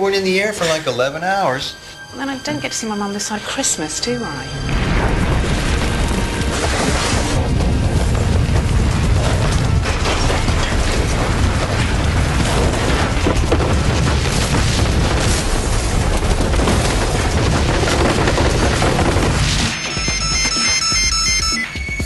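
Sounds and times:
deep rumble of ground shaking: 0:04.6 - 0:19.6
sharp cracks and rattles: 0:04.7 - 0:20.0.

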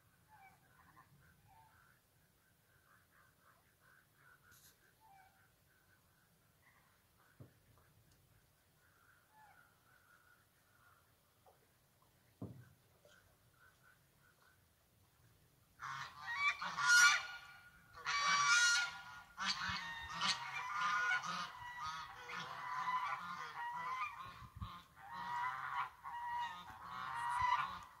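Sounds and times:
goose honking: 0:15.8 - 0:28.0.

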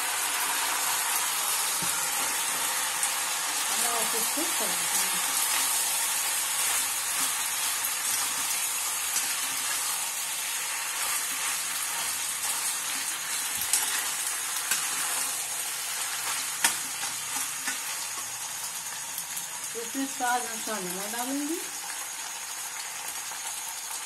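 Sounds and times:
pasta sizzling in a pan: 0:00.0 - 0:24.0
spatula stirring food: 0:00.5 - 0:18.4.

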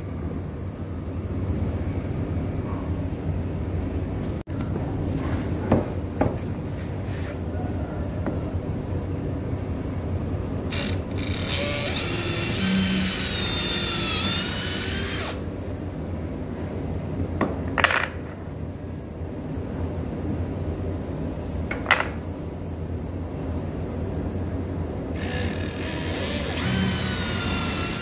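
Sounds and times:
cordless drill driving a screw: 0:10.7 - 0:15.4, 0:25.2 - 0:28.0.

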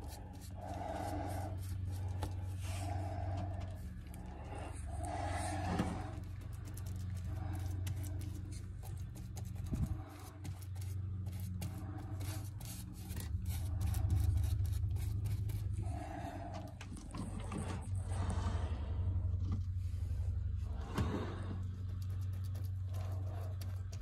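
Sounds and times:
brush scratching on fiberglass: 0:00.0 - 0:16.2
low steady rumble: 0:00.0 - 0:24.0.

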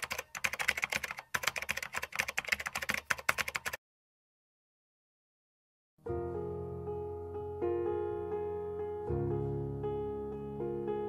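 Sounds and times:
computer keyboard typing: 0:00.0 - 0:03.8.

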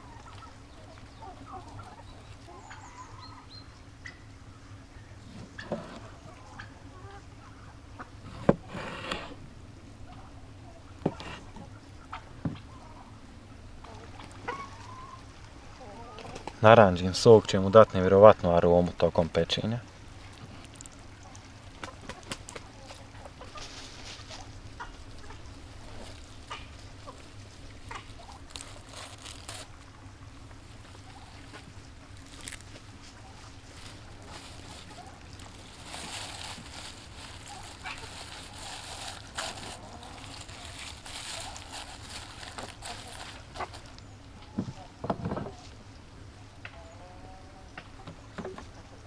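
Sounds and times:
rustle: 0:00.0 - 0:49.0
steady low hum: 0:00.0 - 0:49.0
parsley rustling: 0:25.1 - 0:29.9, 0:30.7 - 0:44.0.

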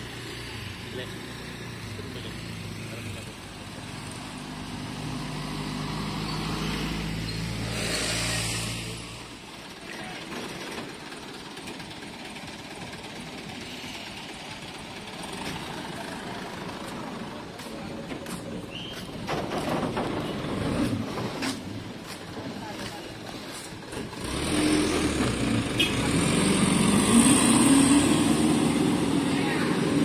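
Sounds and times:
steady outdoor noise: 0:00.0 - 0:30.0
truck engine running: 0:09.2 - 0:30.0.

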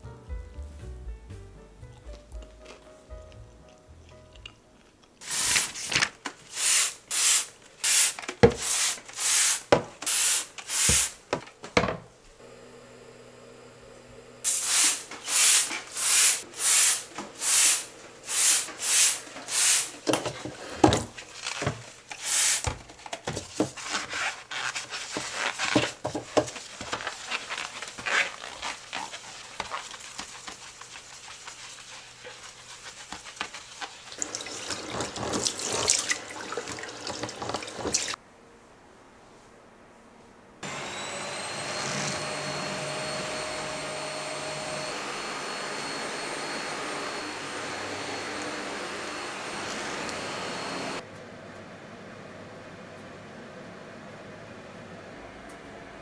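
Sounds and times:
spray bottle squirting: 0:05.2 - 0:11.2, 0:14.5 - 0:19.9, 0:22.1 - 0:22.7
gloved hands scrubbing basin: 0:18.6 - 0:38.2.

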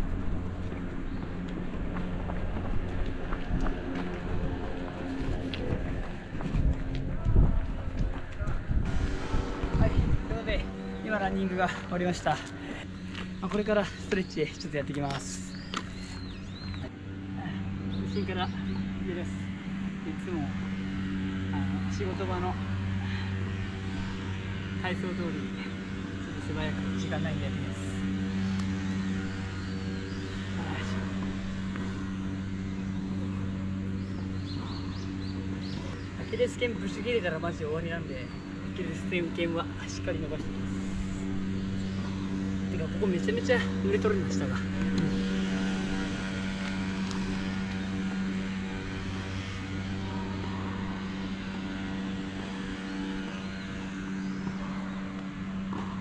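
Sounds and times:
low machine hum: 0:00.0 - 0:56.0.

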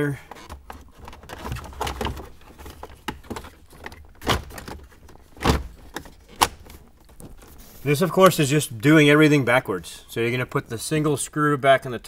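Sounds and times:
plastic trim clicks and knocks: 0:00.3 - 0:07.4.

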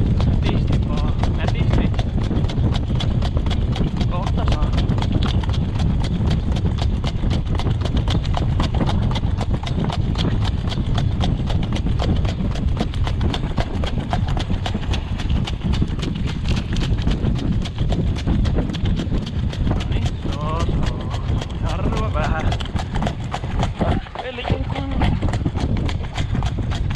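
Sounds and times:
cart wheels rumbling: 0:00.0 - 0:26.9
hoofbeats on gravel: 0:00.0 - 0:26.9.

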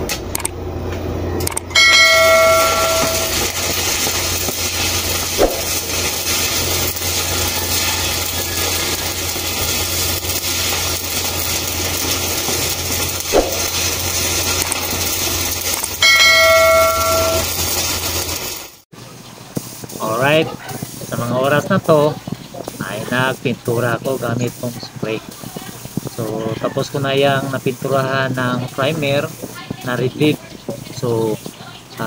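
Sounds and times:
low hum: 0:00.0 - 0:07.6, 0:08.3 - 0:18.4
bell-like chime: 0:01.8 - 0:03.8, 0:16.0 - 0:17.6
steady hiss: 0:02.2 - 0:18.8, 0:19.4 - 0:32.0.

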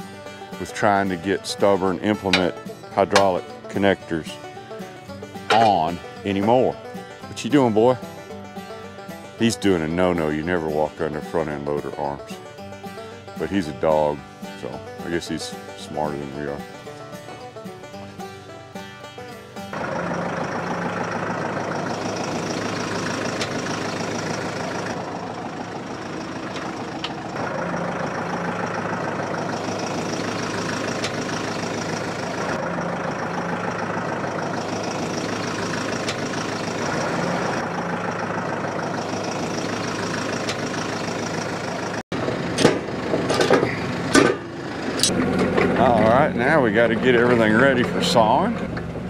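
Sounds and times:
tractor diesel engine idling: 0:00.0 - 0:49.0
loud metal clanks: 0:02.2 - 0:03.4, 0:05.4 - 0:05.9, 0:42.2 - 0:46.1.

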